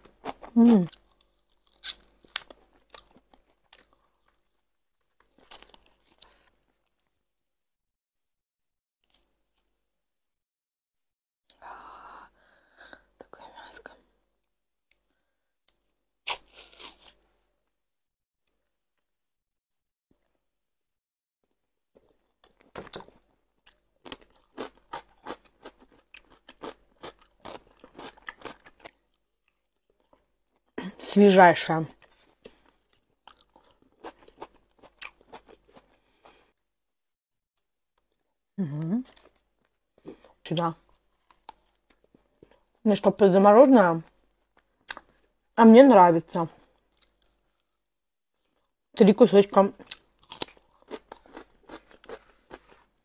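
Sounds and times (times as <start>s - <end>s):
wet crunchy chewing: 0.1s - 6.5s, 22.0s - 30.2s, 49.8s - 52.9s
small crunches: 16.3s - 17.2s.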